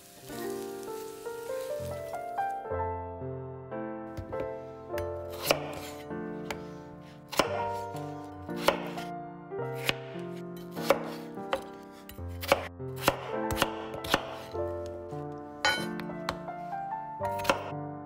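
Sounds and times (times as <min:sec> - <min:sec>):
knife striking wooden board: 0:12.4 - 0:14.5, 0:15.6 - 0:16.5.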